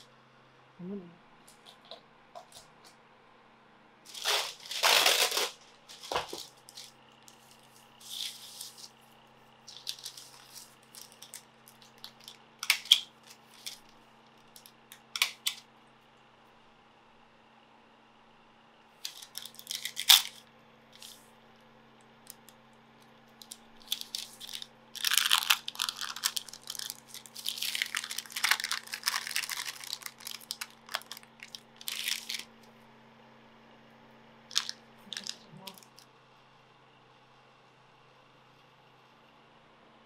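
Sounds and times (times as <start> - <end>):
paper crinkling and tearing: 4.1 - 9.0, 9.7 - 14.0, 19.1 - 20.4, 23.4 - 32.5, 34.5 - 36.0.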